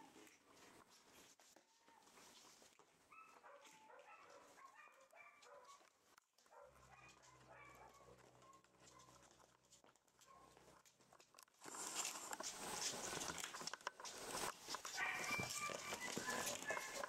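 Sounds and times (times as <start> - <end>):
paws clicking on wooden floor: 0.0 - 17.0
puppies yipping and whimpering: 14.9 - 17.0.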